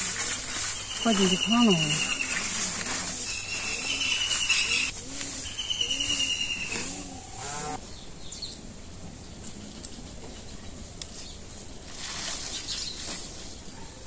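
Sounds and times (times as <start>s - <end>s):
farm animals calling: 1.0s - 7.8s.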